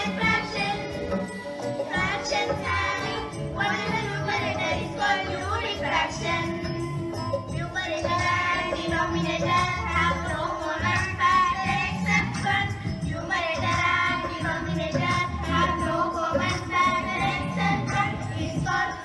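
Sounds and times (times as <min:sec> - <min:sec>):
children singing: 0:00.0 - 0:19.0
instrumental accompaniment: 0:00.0 - 0:19.0.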